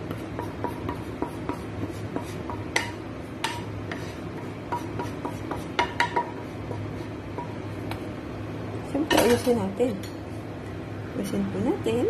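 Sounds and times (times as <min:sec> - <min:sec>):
steady low hum: 0:00.0 - 0:12.0
spatula tapping on dishes: 0:00.1 - 0:08.0
wooden spatula scraping pan: 0:00.2 - 0:07.8.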